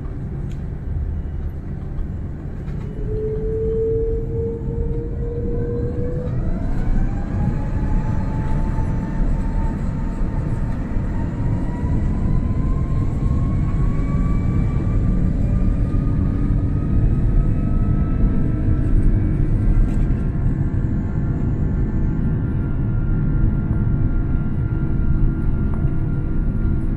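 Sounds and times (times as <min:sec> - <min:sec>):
jet engines building to take-off: 0:00.0 - 0:26.9.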